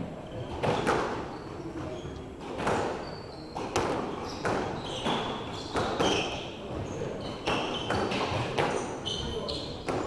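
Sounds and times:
shoes squeaking on hardwood: 0:00.4 - 0:06.5, 0:07.2 - 0:10.0
squash ball knocks: 0:03.6 - 0:06.2.

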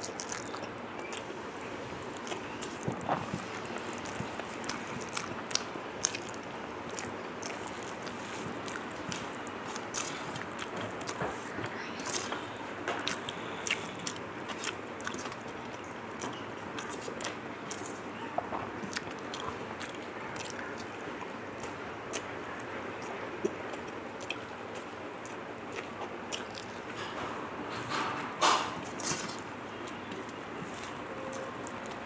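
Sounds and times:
person chewing food: 0:00.0 - 0:27.8, 0:28.8 - 0:32.0
mouth smacks and clicks: 0:23.0 - 0:26.8.

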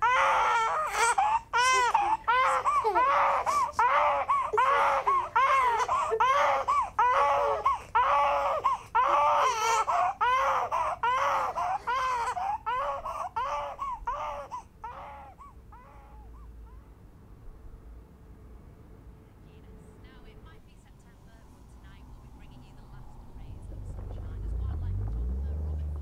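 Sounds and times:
infant crying: 0:00.0 - 0:16.8.

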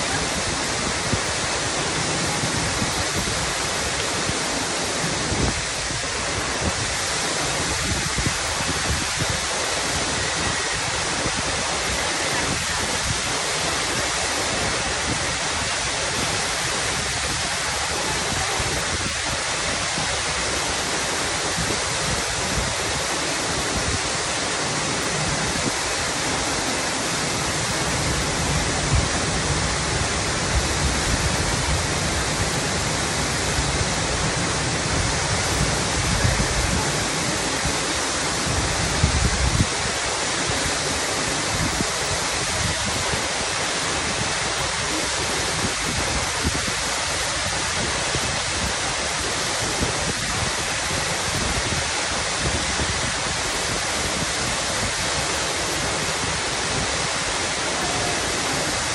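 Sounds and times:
waterfall rushing: 0:00.0 - 0:58.9.

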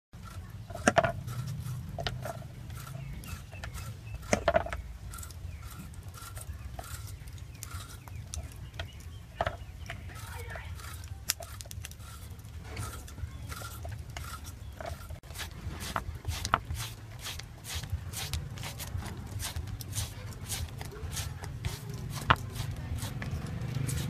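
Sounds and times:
shredder scraping bamboo: 0:00.2 - 0:24.0.

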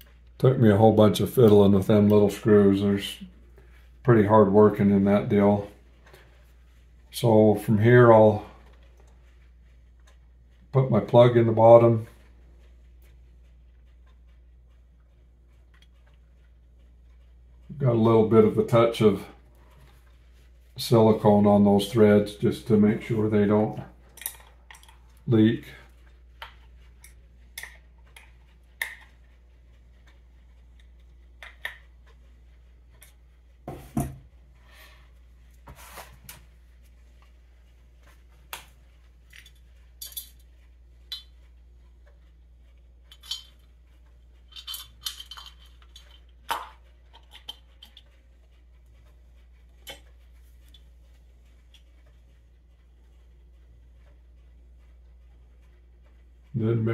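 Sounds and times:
metal parts and tools clinking: 0:24.1 - 0:25.0, 0:39.3 - 0:40.5, 0:43.0 - 0:43.7, 0:44.4 - 0:48.1.

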